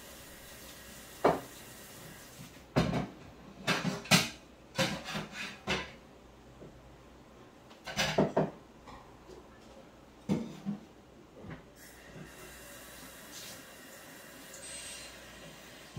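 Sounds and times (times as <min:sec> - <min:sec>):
dishes clattering at a sink: 0:01.2 - 0:01.6, 0:02.7 - 0:06.0, 0:07.8 - 0:09.0, 0:10.2 - 0:11.6.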